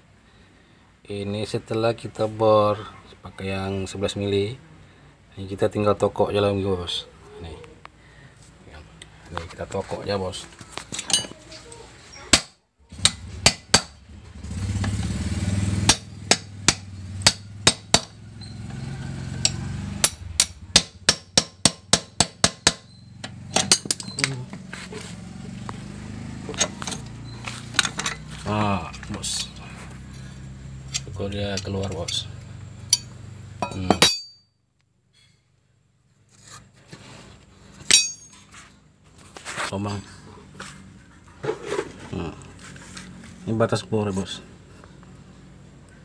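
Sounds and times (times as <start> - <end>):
hammer clinking on metal: 19.4 - 24.4, 32.9 - 34.5, 37.8 - 38.4
metal scraping and rubbing: 23.5 - 25.5, 40.5 - 43.4
sharp metal clink with ring: 32.9 - 34.6, 37.9 - 38.4.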